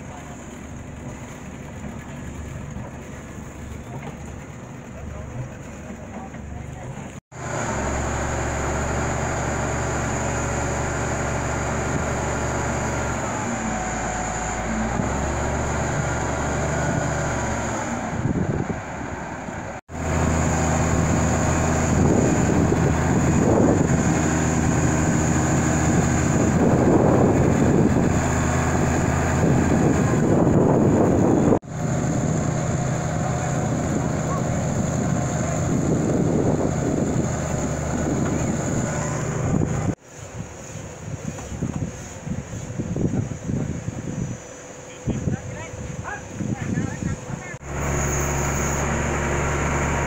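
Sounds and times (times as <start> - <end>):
tractor engine running: 0.0 - 40.0, 46.4 - 50.0.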